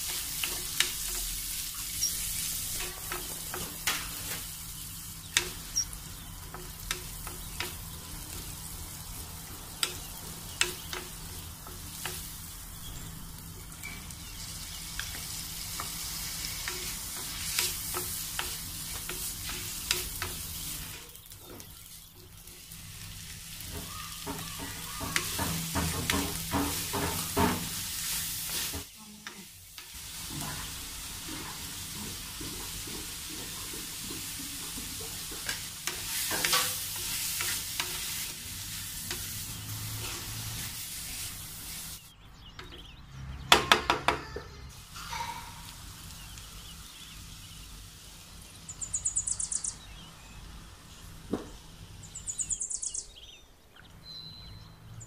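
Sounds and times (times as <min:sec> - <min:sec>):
vegetables sizzling in oil: 0:00.0 - 0:42.1, 0:44.7 - 0:49.7.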